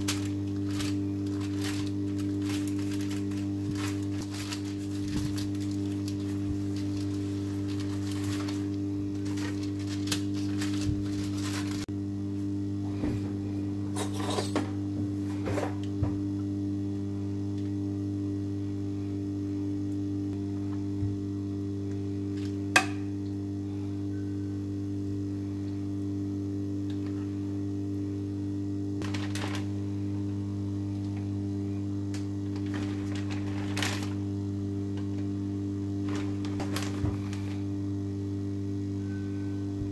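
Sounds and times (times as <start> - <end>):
baking paper rustling: 0.0 - 11.9, 29.0 - 29.8, 32.5 - 34.3, 36.0 - 37.7
low electrical hum: 0.0 - 39.9.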